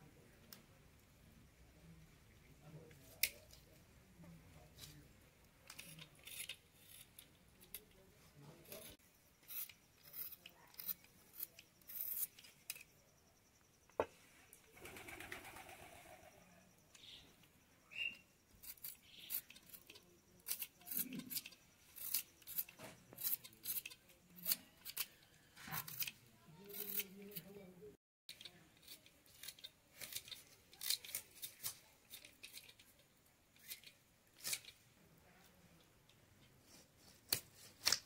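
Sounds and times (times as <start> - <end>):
knife cutting and peeling: 5.7 - 12.9, 18.6 - 27.6, 28.3 - 33.0, 33.6 - 34.8, 36.6 - 38.0.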